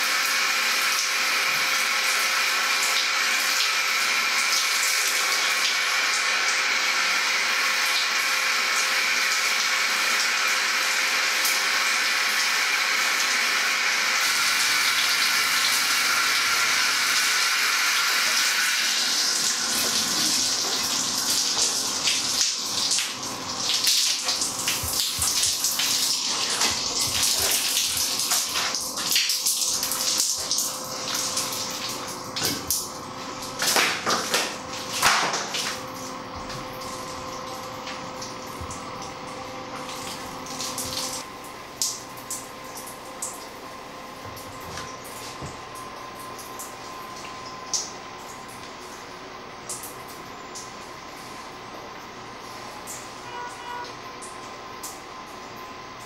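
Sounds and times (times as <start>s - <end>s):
water running and splashing: 14.2s - 43.6s
water dripping: 19.4s - 34.2s.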